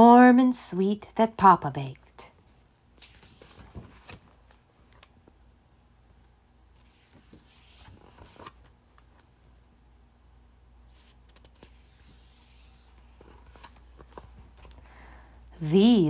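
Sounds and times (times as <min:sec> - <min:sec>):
paper pages turning: 0:02.9 - 0:05.2, 0:06.7 - 0:09.3, 0:10.9 - 0:14.8.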